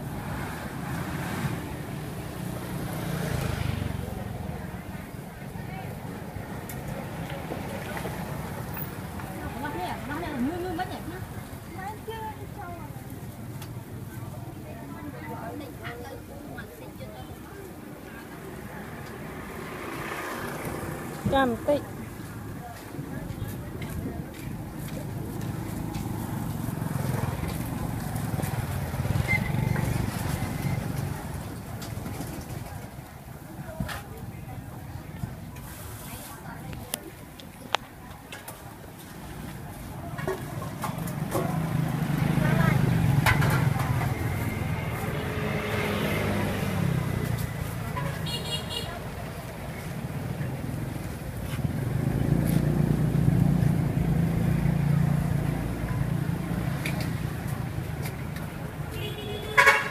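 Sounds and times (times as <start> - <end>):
vehicle engine passing by: 0.0 - 4.7, 18.8 - 22.0, 40.7 - 48.0, 48.9 - 58.8
passing vehicle engines rumble: 0.0 - 59.9
street traffic: 0.0 - 59.9.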